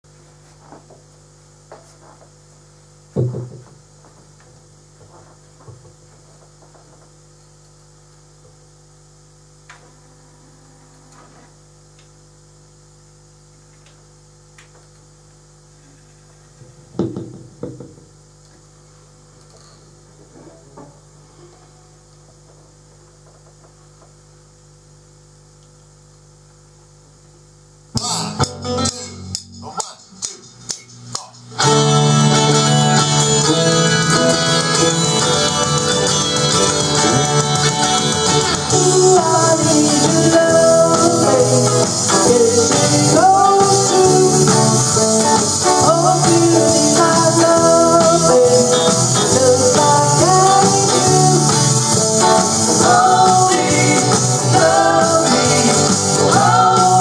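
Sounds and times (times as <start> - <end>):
mains hum from amplification: 0.0 - 57.0
loud thump: 3.2 - 3.7, 17.0 - 18.0.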